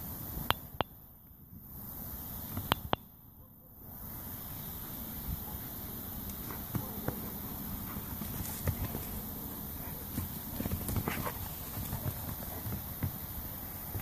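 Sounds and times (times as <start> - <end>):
dogs play-fighting scuffles: 6.3 - 14.0.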